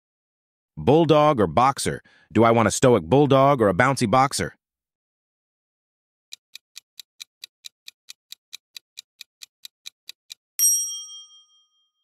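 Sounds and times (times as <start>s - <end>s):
clock ticking: 6.3s - 10.5s
bright chime: 10.6s - 12.0s.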